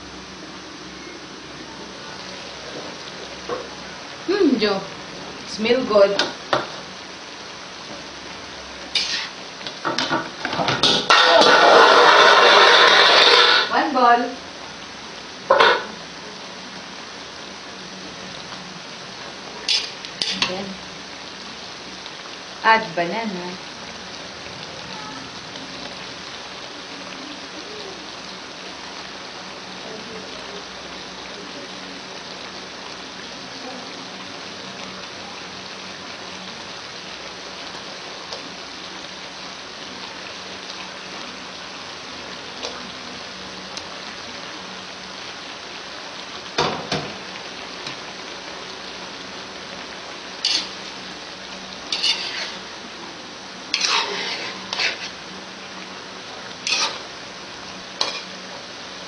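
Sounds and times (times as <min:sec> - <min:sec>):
stew sizzling in a wok: 0:00.0 - 0:59.0
metal spatula scraping wok: 0:08.9 - 0:09.4, 0:10.5 - 0:13.8, 0:19.6 - 0:20.7, 0:50.4 - 0:51.1, 0:51.8 - 0:52.7, 0:53.7 - 0:55.2, 0:56.6 - 0:57.2, 0:58.0 - 0:58.4.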